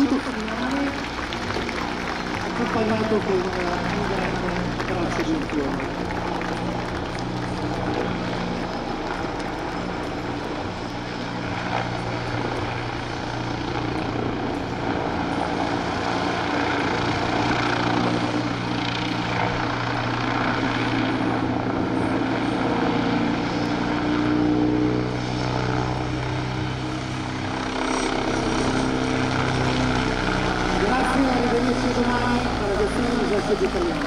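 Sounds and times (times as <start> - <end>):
helicopter flying overhead: 0.0 - 34.0.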